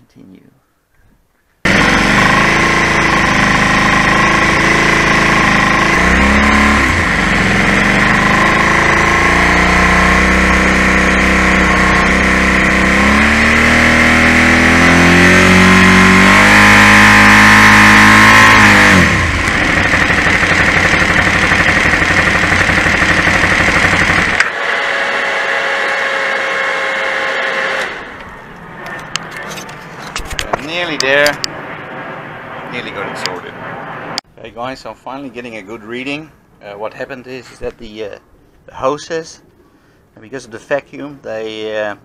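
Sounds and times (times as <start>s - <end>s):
motorcycle engine revving: 1.6s - 34.2s
steady high whine: 15.6s - 34.2s.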